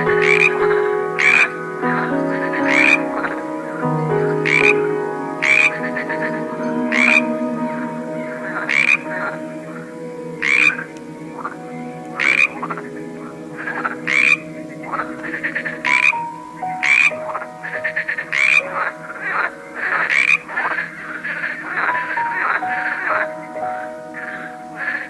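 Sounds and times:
frogs croaking: 0.0s - 25.0s.

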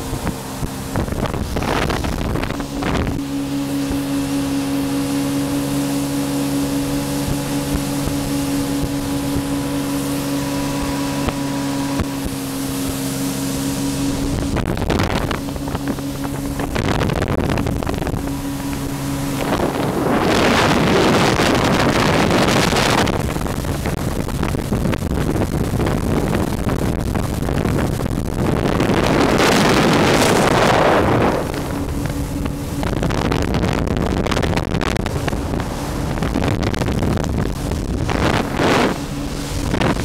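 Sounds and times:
water spray rushing: 0.0s - 24.6s
jet ski engine droning: 0.0s - 40.0s
wind on microphone: 0.0s - 40.0s.

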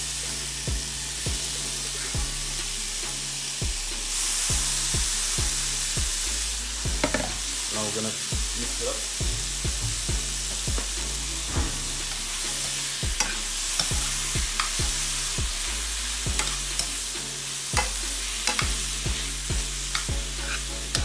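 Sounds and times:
food sizzling in frying pan: 0.0s - 21.0s
metal spoon scraping pan: 7.0s - 7.6s, 11.0s - 21.0s.

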